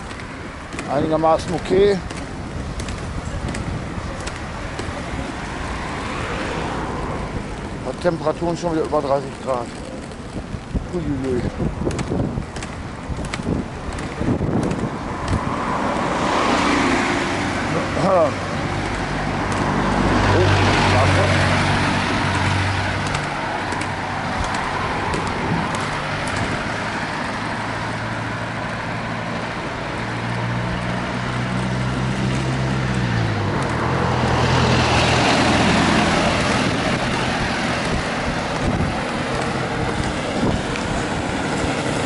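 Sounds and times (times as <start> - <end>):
road traffic: 0.0 - 42.0
roller-skate wheels on asphalt: 0.0 - 42.0
vehicle engine passing by: 15.1 - 42.0.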